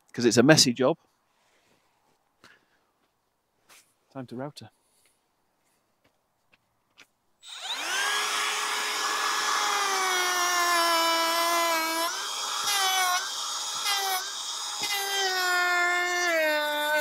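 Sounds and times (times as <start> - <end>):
router cutting wood: 7.4 - 17.0.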